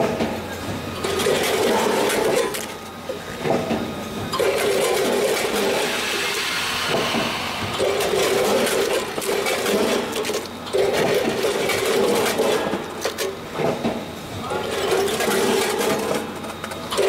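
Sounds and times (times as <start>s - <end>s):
machine buzzing hum: 0.8s - 14.2s
packets rattling against metal hoppers: 1.0s - 3.0s, 4.4s - 5.8s, 7.8s - 13.8s, 14.4s - 17.0s.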